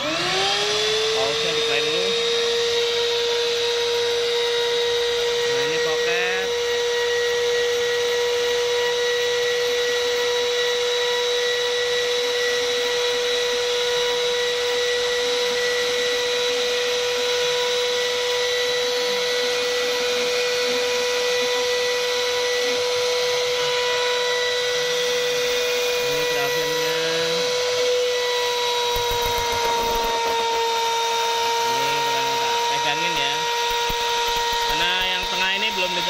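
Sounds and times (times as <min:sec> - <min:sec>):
router spindle high whine: 0:00.0 - 0:36.0
cutting hiss: 0:25.5 - 0:36.0.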